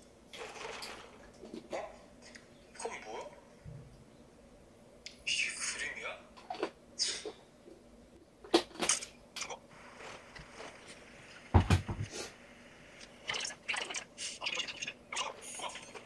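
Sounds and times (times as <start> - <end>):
objects knocking and clicking on desk: 11.5 - 12.1.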